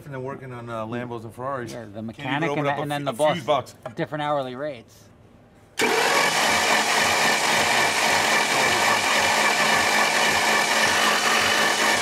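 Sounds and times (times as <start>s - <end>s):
starter motor cranking engine: 5.8s - 12.0s.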